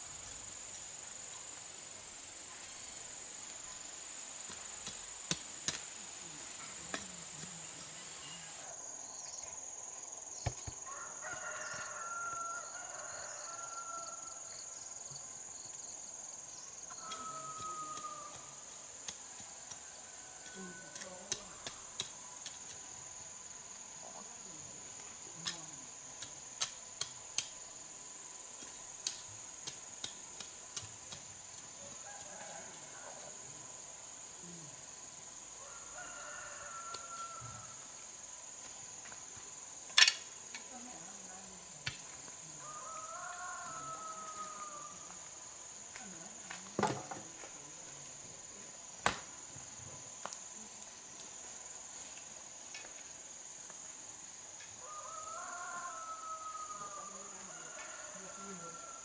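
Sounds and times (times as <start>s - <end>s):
rooster crowing: 10.8s - 14.6s, 16.9s - 18.6s, 35.6s - 37.9s, 42.6s - 45.2s, 54.8s - 59.0s.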